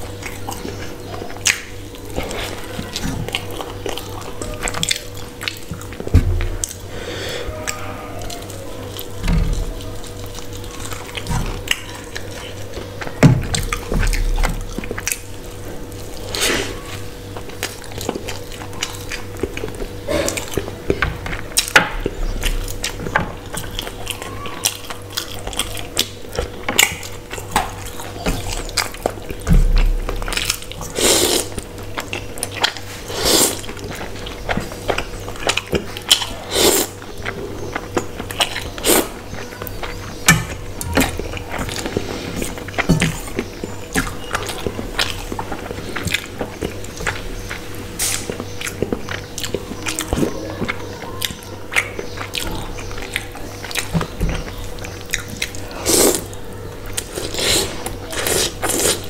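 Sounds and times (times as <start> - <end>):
chewing: 0.0 - 59.0
slurping noodles: 30.8 - 31.6, 32.9 - 33.7, 36.4 - 37.0, 55.5 - 56.3, 57.0 - 59.0.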